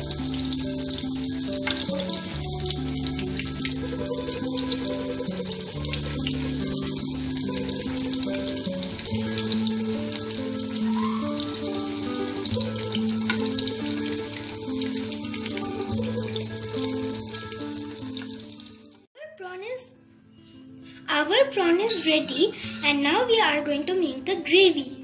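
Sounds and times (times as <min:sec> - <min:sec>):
background music of held notes: 0:00.0 - 0:19.1, 0:20.4 - 0:25.0
deep-frying sizzle and crackle: 0:00.0 - 0:19.1.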